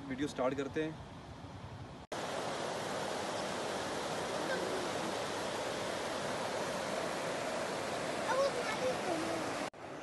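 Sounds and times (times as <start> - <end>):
stream rushing over rocks: 2.1 - 10.0.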